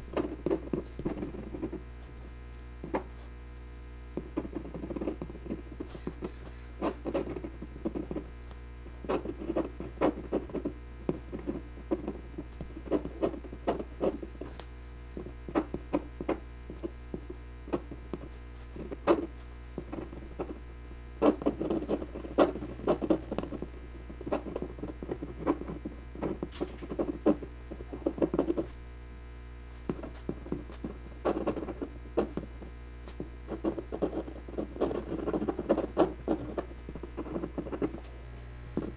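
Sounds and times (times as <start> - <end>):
pen nib scratching on paper: 0.0 - 3.3, 4.2 - 8.3, 8.9 - 20.6, 21.2 - 28.8, 29.9 - 38.1
steady low hum: 0.0 - 38.9.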